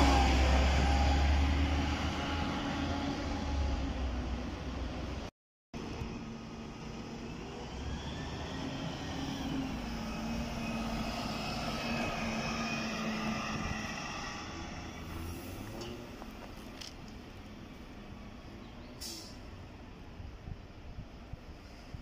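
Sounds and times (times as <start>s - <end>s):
bus engine whining past: 0.0s - 5.3s, 6.0s - 16.5s.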